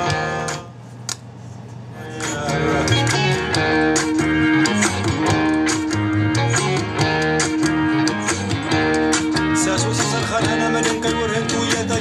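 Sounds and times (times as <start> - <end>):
guitar background music: 0.0 - 0.7, 2.2 - 12.0.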